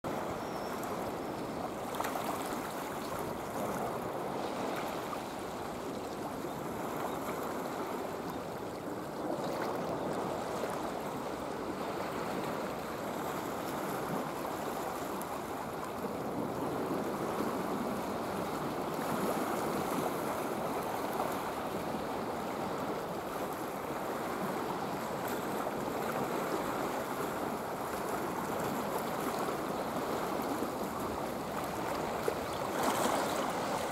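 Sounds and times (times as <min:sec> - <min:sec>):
sea water washing against rocks: 0:26.2 - 0:33.9.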